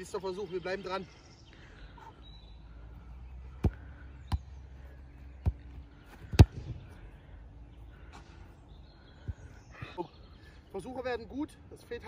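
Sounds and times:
football thumping: 0:05.4 - 0:06.8.

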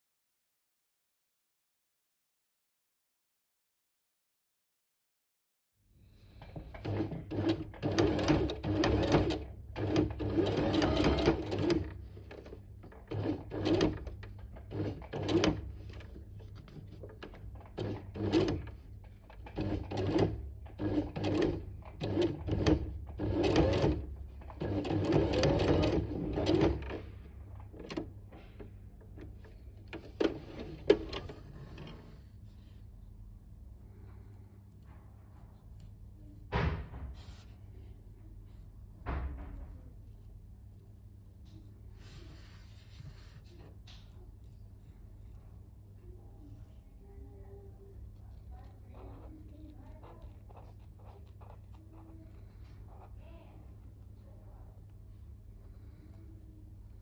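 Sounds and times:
sewing machine stitching: 0:06.4 - 0:28.1, 0:29.2 - 0:32.7.

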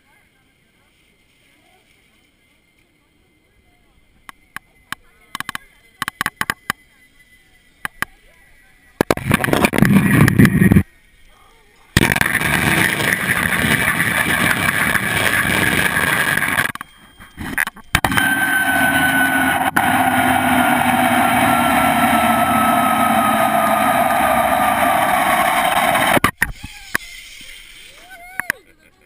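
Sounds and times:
cable whine falling in pitch: 0:07.7 - 0:11.1, 0:12.0 - 0:26.6
zipline cable whirring: 0:09.1 - 0:10.9, 0:12.0 - 0:28.6.

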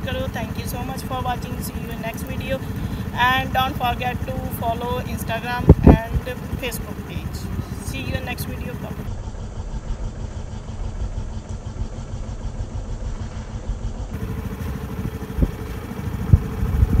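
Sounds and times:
wind buffeting microphone: 0:00.0 - 0:09.1, 0:14.1 - 0:17.0.

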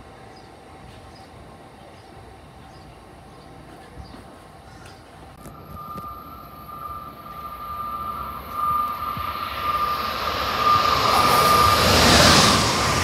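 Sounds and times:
train wheel and air noise: 0:00.0 - 0:13.0
steady high whine: 0:05.4 - 0:13.0.

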